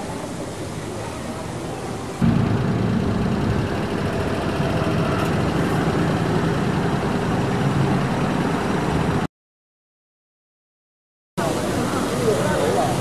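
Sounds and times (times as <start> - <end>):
street traffic: 0.0 - 9.3, 11.4 - 13.0
vehicle engine rumbling: 2.2 - 9.3.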